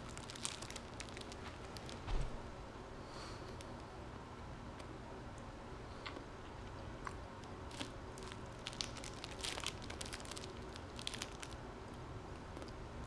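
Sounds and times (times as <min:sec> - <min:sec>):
plastic wrapper crinkling: 0:00.0 - 0:02.0, 0:07.7 - 0:11.6.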